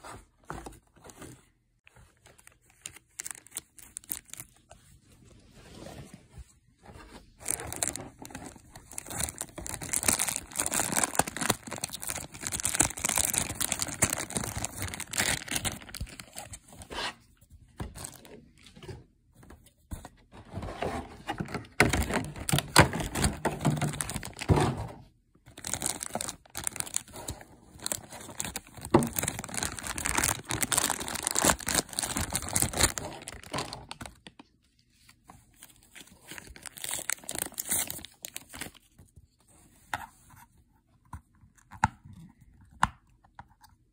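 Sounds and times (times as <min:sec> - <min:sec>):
plastic packaging crinkling: 0:02.2 - 0:04.8, 0:07.4 - 0:16.7, 0:21.8 - 0:24.6, 0:25.5 - 0:34.5, 0:35.6 - 0:38.9.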